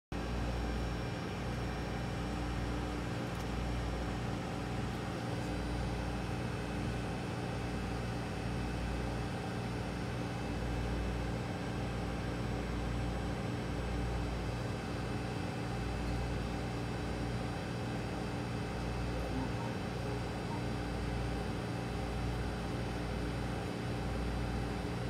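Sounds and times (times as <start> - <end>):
mechanical hum with tones: 0.2 - 25.0.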